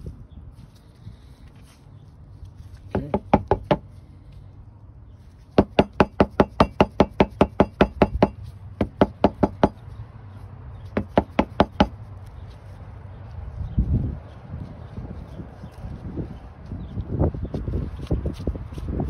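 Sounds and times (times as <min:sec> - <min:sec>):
rapid sharp knocking: 0:02.9 - 0:03.8, 0:05.6 - 0:09.8, 0:11.0 - 0:12.0.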